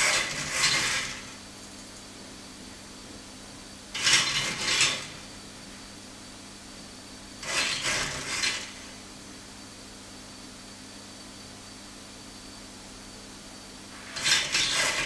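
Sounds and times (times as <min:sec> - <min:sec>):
crane trolley motor running: 0:00.0 - 0:01.4, 0:03.9 - 0:05.3, 0:07.4 - 0:09.0, 0:14.0 - 0:15.0
steady hum: 0:00.0 - 0:15.0.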